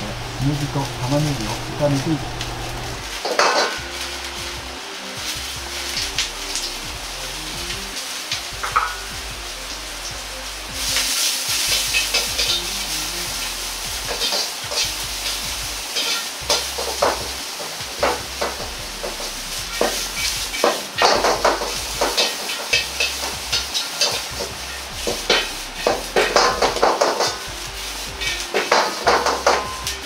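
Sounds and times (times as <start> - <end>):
mushrooms sizzling in hot oil: 0.0 - 30.0
metal ladle scraping wok: 10.5 - 17.4, 18.0 - 30.0.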